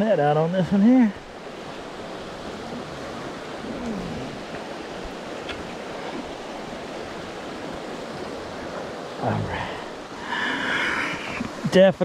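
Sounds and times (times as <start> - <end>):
stream running over rocks: 0.0 - 12.0.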